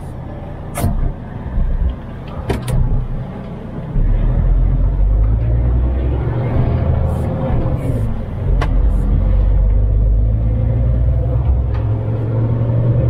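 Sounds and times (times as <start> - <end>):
truck engine rumbling: 0.0 - 13.0
sharp clicks and knocks: 0.7 - 3.0.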